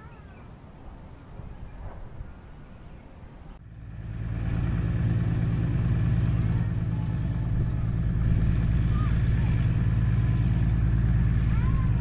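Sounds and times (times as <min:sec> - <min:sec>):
propeller plane engine: 0:03.6 - 0:12.0.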